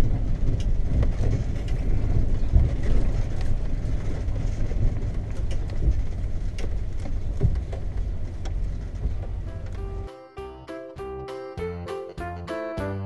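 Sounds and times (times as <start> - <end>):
tyres rolling over gravel: 0.0 - 10.1
engine and road rumble: 0.0 - 13.0.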